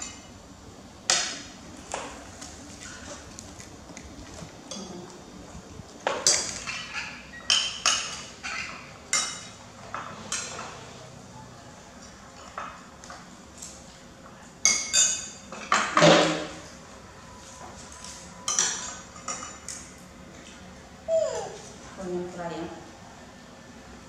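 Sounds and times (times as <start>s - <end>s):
spoons clinking on plates: 6.1s - 10.8s, 14.6s - 16.2s, 18.4s - 20.0s.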